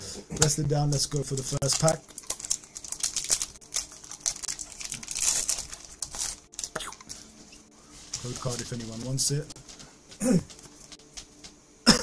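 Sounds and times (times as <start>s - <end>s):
foil wrapper tearing and crinkling: 0.4s - 7.3s, 8.1s - 9.3s.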